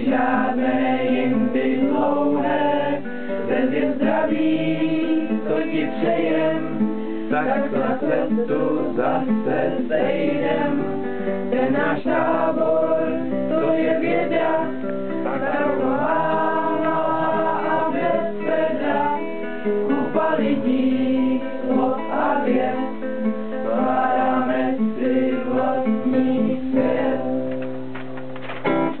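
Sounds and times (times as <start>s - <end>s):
group singing: 0.0s - 27.5s
strummed acoustic guitar: 0.0s - 29.0s.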